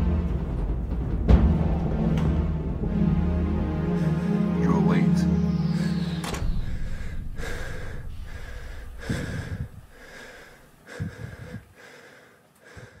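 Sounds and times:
person breathing heavily: 3.8 - 4.6, 5.6 - 13.0.

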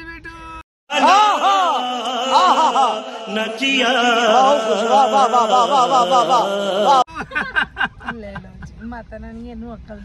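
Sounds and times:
man singing a devotional chant: 0.9 - 7.1
steady held drone tone: 0.9 - 7.1.

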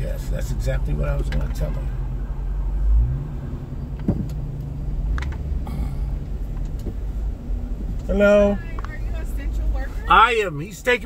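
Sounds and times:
car engine idling: 0.0 - 11.0
light clicks and knocks in car: 1.2 - 1.6, 4.0 - 5.5, 6.5 - 7.1, 7.7 - 9.1.

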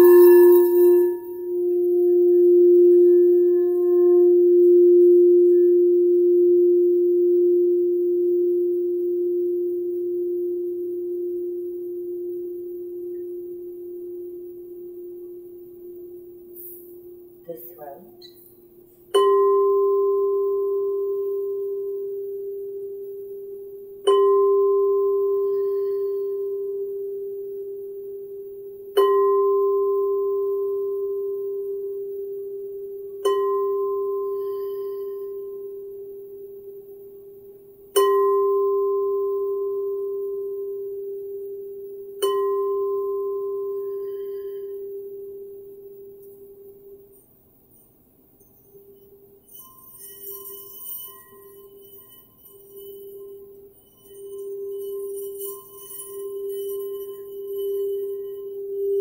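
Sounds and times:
singing bowl struck with mallet: 0.0 - 16.2.

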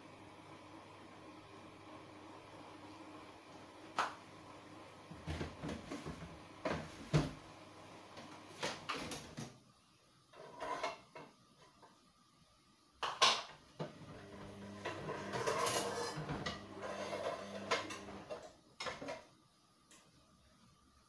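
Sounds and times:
items knocking in kitchen cabinet: 5.2 - 7.4.

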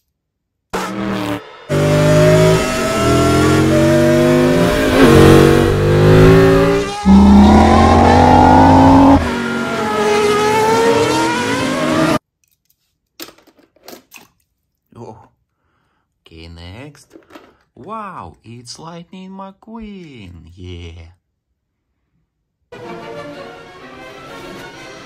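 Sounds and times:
race car engines revving and passing: 0.8 - 12.2.

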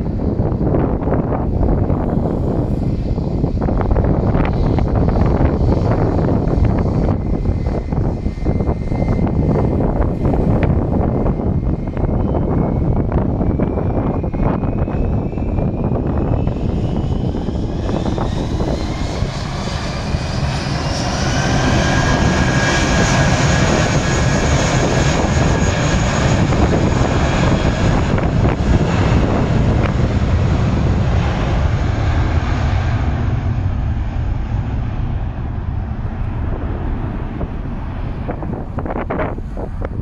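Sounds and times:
jet engines spooling up: 0.0 - 40.0
rising whine: 0.0 - 40.0.

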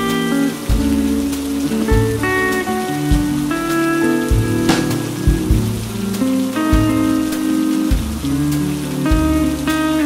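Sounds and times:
rain on a window: 0.0 - 10.0
soft jazz music: 0.0 - 10.0.

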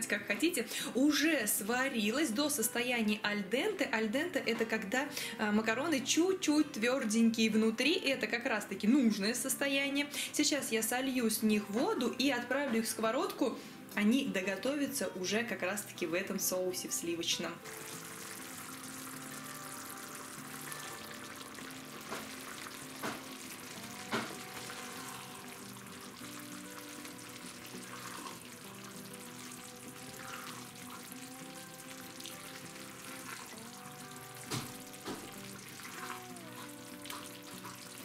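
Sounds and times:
sauce bubbling and sizzling: 17.6 - 38.0.

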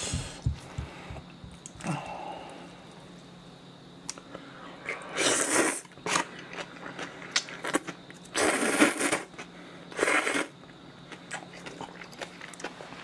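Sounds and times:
noodles slurped: 4.9 - 10.6.

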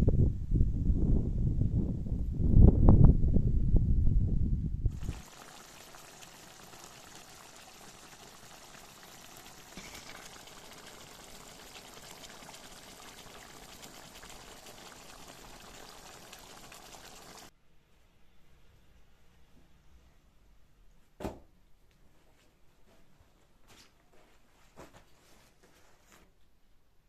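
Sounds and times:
sauce bubbling in a pan: 4.9 - 17.5.

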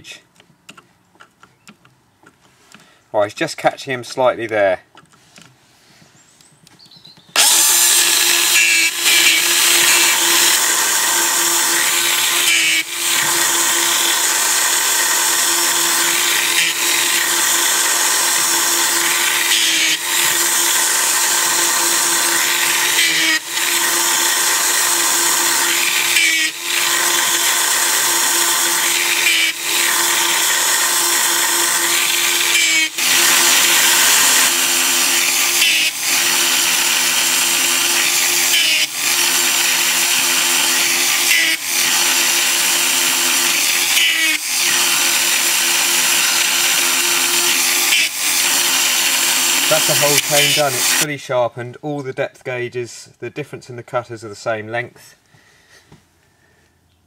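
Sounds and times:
electric grinder grinding chain: 7.4 - 51.1.

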